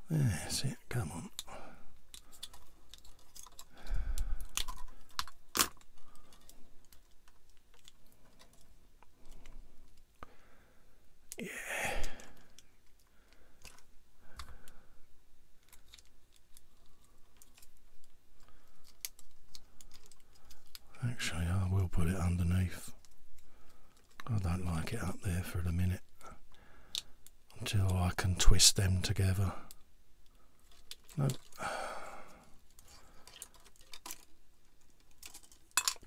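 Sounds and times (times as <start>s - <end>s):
plastic parts clicking: 1.3s - 10.3s, 12.3s - 14.8s, 15.6s - 20.9s, 30.6s - 31.6s, 32.7s - 36.0s.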